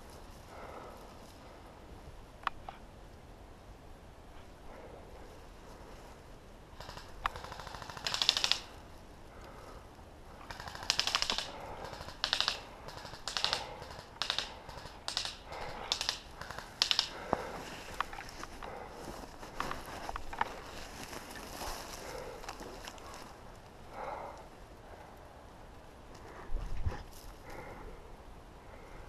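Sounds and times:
branches scraping: 16.5 - 23.6
footsteps crunching through twigs: 17.3 - 23.4.

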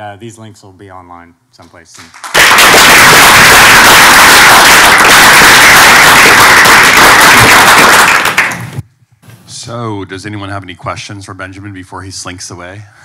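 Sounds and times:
audience applauding: 2.2 - 8.8.

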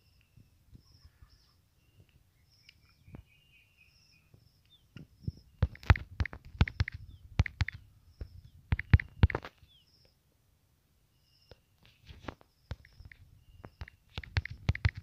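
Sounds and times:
faint bird chirps: 0.0 - 10.3, 11.0 - 15.0
touchscreen typing taps: 4.9 - 9.6, 12.7 - 15.0.

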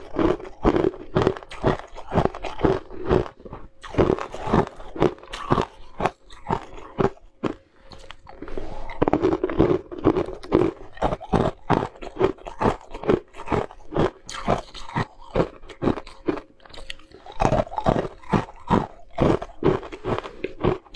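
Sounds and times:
ice cubes crunched by teeth: 0.0 - 20.9.

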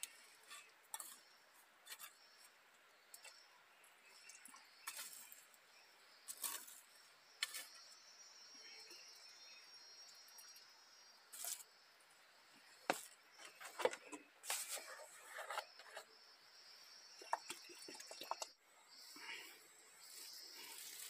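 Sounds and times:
insects trilling: 0.0 - 21.0.

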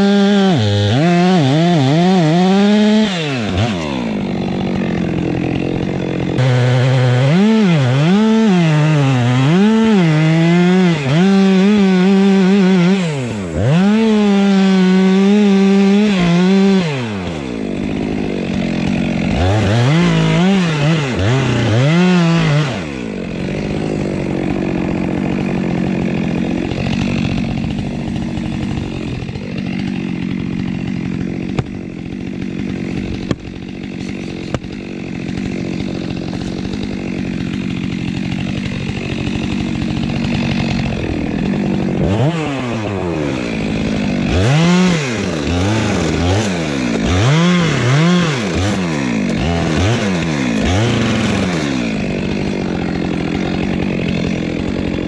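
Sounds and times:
chainsaw cutting into tree: 0.0 - 55.0
chainsaw engine revving: 0.0 - 55.0
sharp knocks: 31.5 - 31.8, 33.2 - 33.6, 34.5 - 34.8.

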